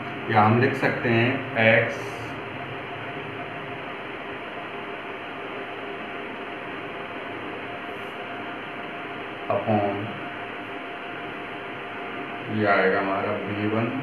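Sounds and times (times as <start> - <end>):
faint steady hum: 0.0 - 14.0
room hiss: 0.0 - 14.0.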